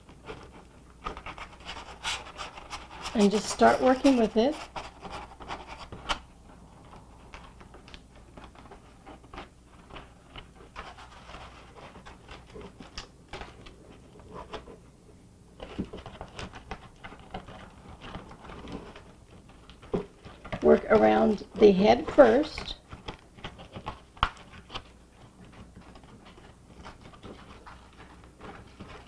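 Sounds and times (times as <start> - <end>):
aluminum foil crinkling: 0.0 - 14.7, 15.6 - 29.0.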